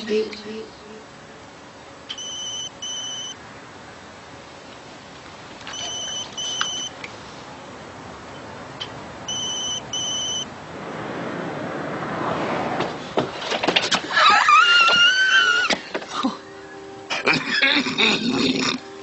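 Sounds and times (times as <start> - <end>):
electronic telephone ringing: 2.1 - 3.4, 5.7 - 6.9
rushing noise: 10.4 - 13.9.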